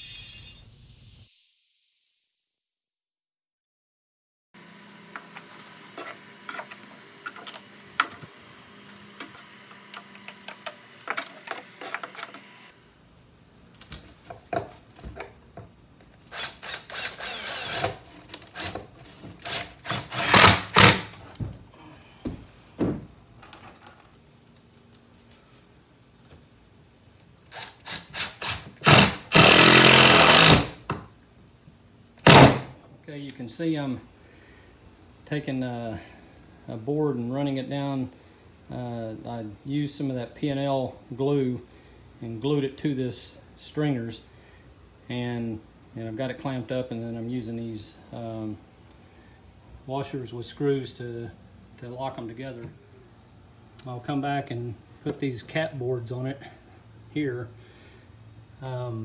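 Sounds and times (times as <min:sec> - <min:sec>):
cordless drill whirring: 0:16.3 - 0:18.8, 0:19.4 - 0:21.1, 0:27.5 - 0:30.8.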